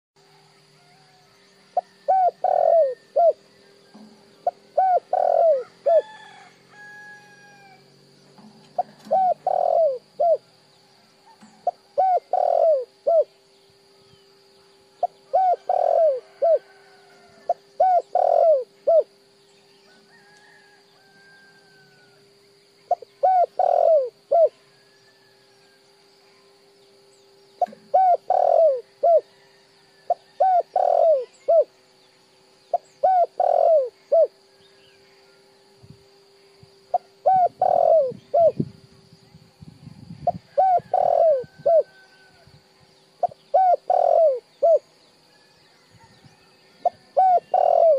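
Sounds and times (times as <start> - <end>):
faint bird chirps: 0.2 - 47.9
faint steady hum: 0.2 - 47.9
dove cooing: 1.8 - 6.4, 8.4 - 10.5, 11.2 - 13.4, 15.0 - 19.2, 22.8 - 24.6, 27.6 - 31.7, 32.7 - 34.4, 36.9 - 38.7, 40.1 - 42.4, 43.2 - 44.9, 46.8 - 47.9.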